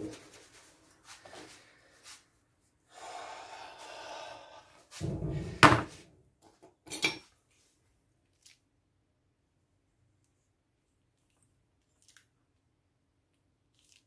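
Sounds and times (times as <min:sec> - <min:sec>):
loud knock: 0:05.0 - 0:06.0.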